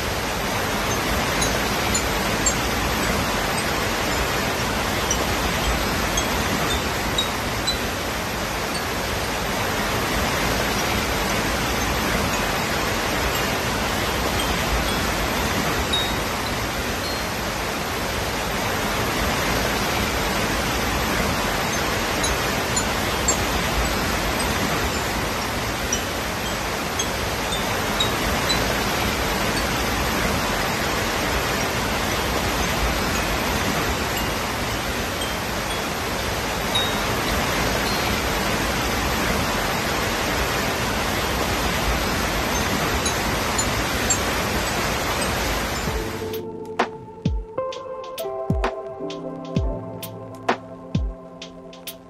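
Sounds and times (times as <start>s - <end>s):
waterfall rushing over rocks: 0.0s - 47.5s
faint high tinkles: 0.9s - 8.1s, 10.5s - 17.6s, 32.6s - 38.7s.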